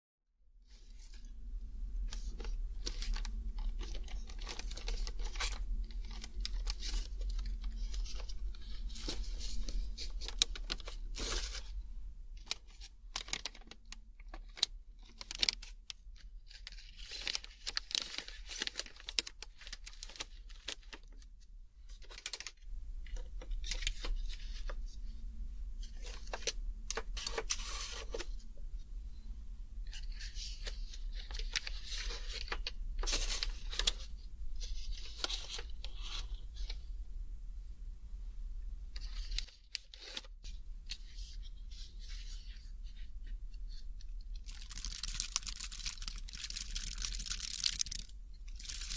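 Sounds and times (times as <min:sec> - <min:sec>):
faint low hum: 0:00.4 - 0:48.9
plastic packaging crinkling: 0:02.1 - 0:11.7, 0:12.4 - 0:15.9, 0:16.5 - 0:21.2, 0:43.7 - 0:48.9.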